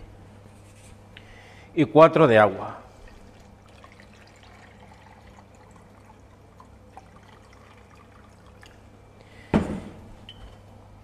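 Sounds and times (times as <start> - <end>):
water trickling into liquid: 2.9 - 9.0.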